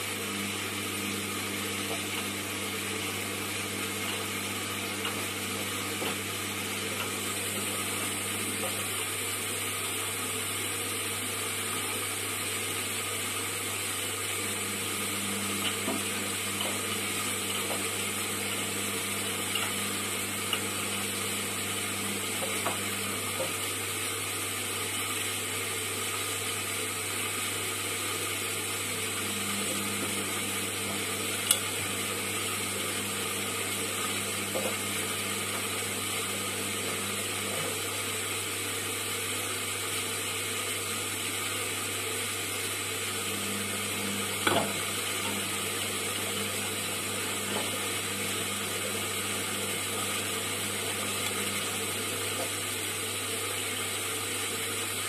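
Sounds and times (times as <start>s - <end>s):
steady hum: 14.2s - 25.9s, 26.7s - 39.2s, 42.9s - 53.4s
washing machine drum turning: 43.4s - 52.7s.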